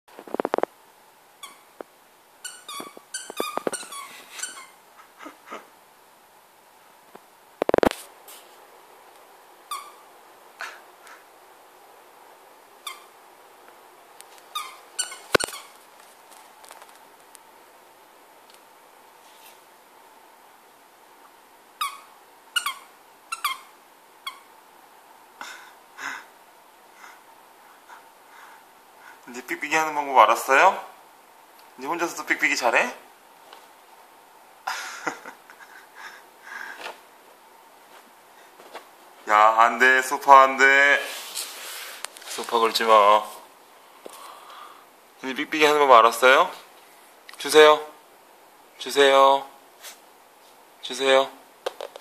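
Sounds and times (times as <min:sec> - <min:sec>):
toy squeaker squeaking: 0:02.4 - 0:04.8, 0:14.6 - 0:15.7, 0:21.8 - 0:23.7.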